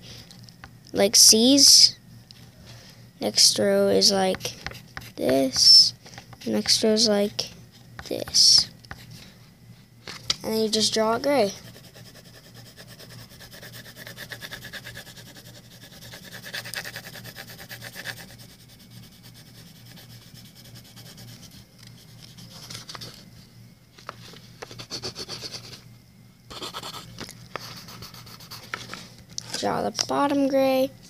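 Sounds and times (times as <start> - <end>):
pencil shading on paper: 11.5 - 22.5.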